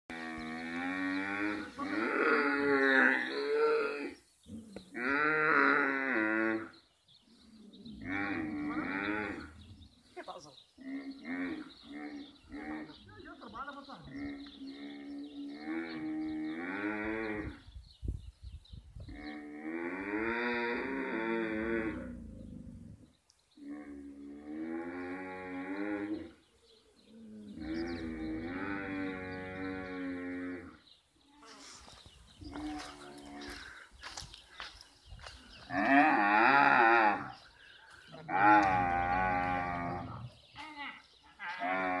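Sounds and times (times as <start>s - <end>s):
camels moaning calls: 38.2s - 40.4s.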